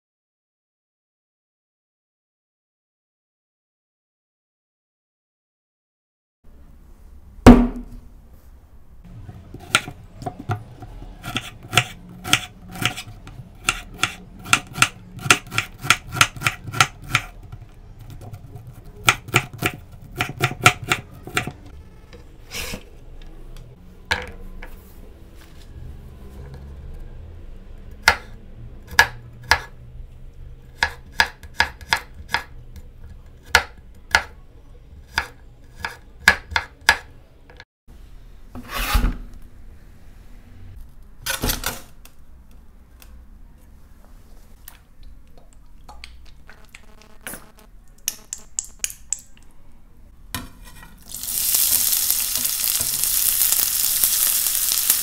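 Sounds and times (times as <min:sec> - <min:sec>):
knife chopping on cutting board: 0:11.2 - 0:17.3, 0:19.0 - 0:21.5, 0:28.9 - 0:29.7, 0:30.8 - 0:32.5.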